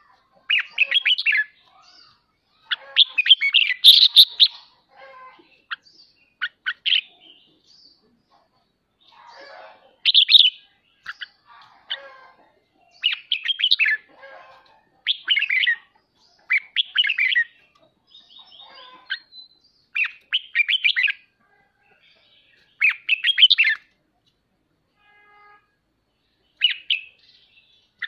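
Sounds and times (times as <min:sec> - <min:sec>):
bulbul chattering song: 0:00.0 - 0:14.2, 0:15.0 - 0:24.4, 0:26.2 - 0:28.0.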